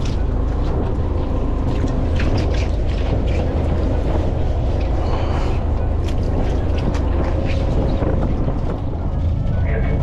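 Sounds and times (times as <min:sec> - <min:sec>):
boat engine humming: 0:00.0 - 0:10.0
wind on microphone: 0:00.0 - 0:10.0.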